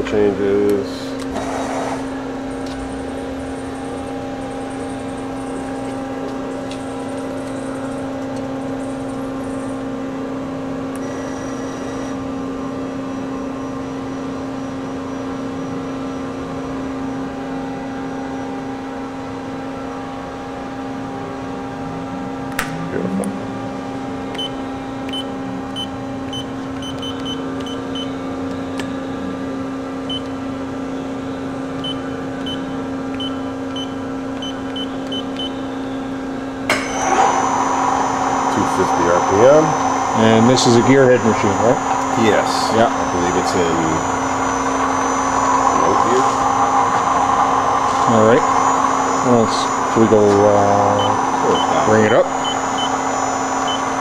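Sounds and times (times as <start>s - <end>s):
machining center humming: 0.0s - 54.0s
rising whir: 36.5s - 54.0s.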